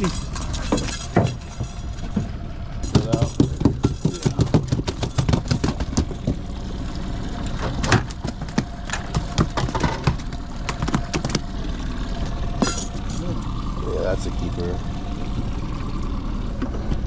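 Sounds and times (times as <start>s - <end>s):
fish thrashing on boat deck: 0.0s - 6.6s, 7.5s - 11.6s
outboard motor idling: 0.0s - 17.0s.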